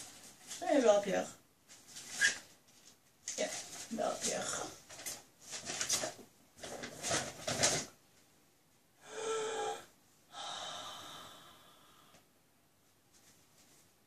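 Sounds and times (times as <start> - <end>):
gift bag rustling: 1.7 - 8.0.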